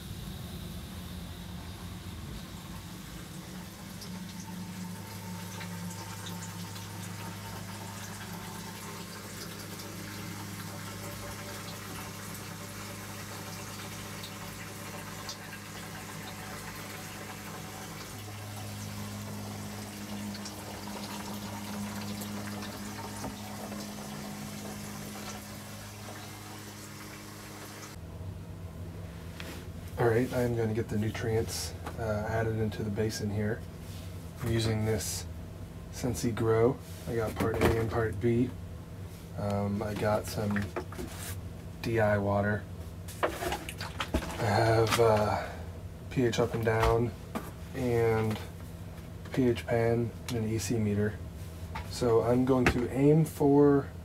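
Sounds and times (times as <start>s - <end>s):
low electric hum: 0.0s - 54.0s
water running and trickling: 1.5s - 28.0s, 43.2s - 45.6s.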